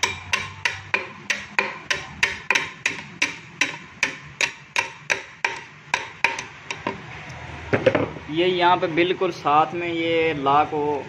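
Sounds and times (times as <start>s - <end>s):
hammer tapping on metal: 0.0s - 7.0s.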